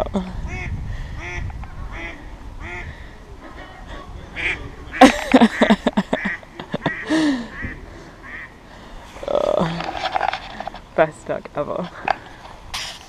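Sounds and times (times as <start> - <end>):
ducks quacking: 0.0 - 10.4.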